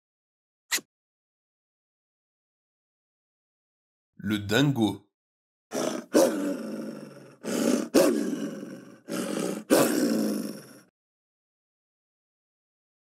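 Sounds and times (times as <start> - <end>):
dingo growling: 5.7 - 10.9.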